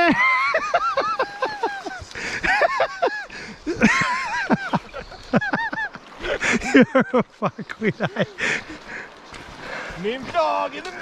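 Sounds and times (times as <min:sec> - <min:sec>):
man whooping and laughing: 0:00.0 - 0:07.3.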